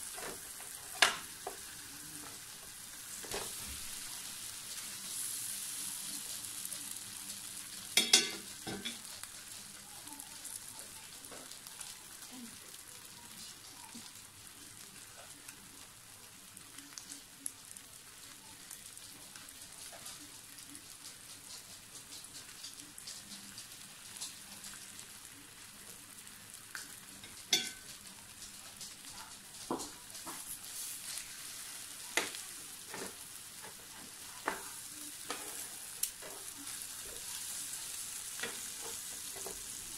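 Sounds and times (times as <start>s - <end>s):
ribs sizzling on a grill: 0.0s - 39.9s
metal tongs clacking: 8.0s - 9.1s, 27.3s - 27.9s.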